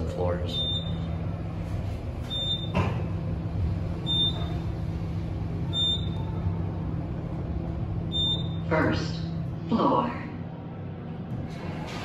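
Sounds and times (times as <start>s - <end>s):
elevator hum: 0.0s - 12.0s
short high elevator beeps: 0.5s - 1.1s, 2.3s - 2.8s, 4.0s - 4.6s, 5.7s - 6.2s, 8.1s - 8.6s.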